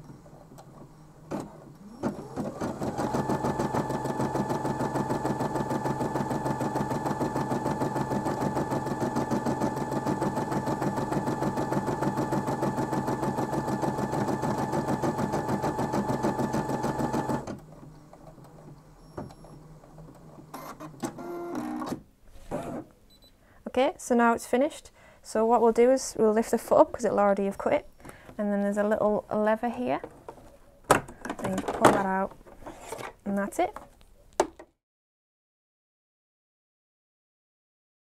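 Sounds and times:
embroidery machine stitching: 1.3 - 17.6.

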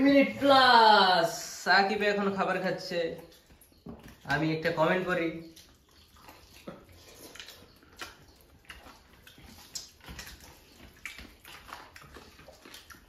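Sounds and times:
chewing: 3.2 - 4.4, 5.4 - 13.0
fingers mashing and scooping food: 5.4 - 13.0.

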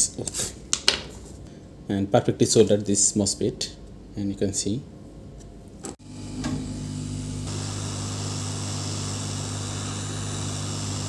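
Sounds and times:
hot air blower hum and hiss: 6.0 - 11.0.

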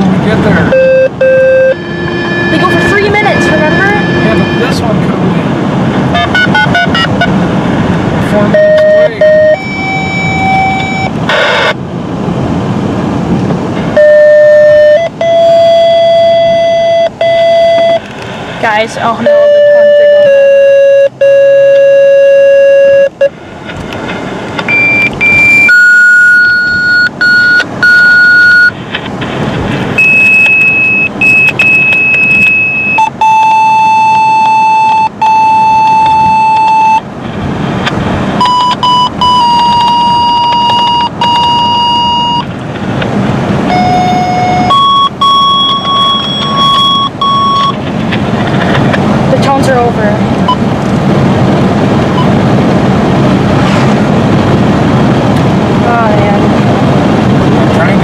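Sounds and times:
radio activation tones: 0.7 - 4.8, 8.4 - 11.8, 19.0 - 23.3, 24.6 - 28.8.

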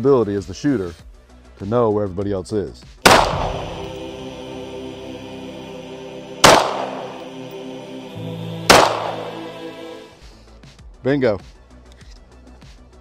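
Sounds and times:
background music: 0.0 - 13.0
pistol shots with echo: 3.1 - 3.8, 6.4 - 7.2, 8.7 - 9.3.

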